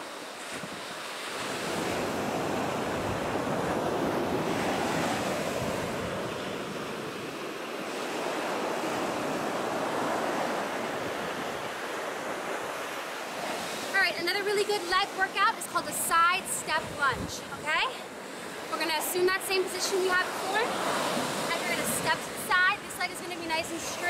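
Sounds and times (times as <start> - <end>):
ocean surf breaking on beach: 0.0 - 24.0.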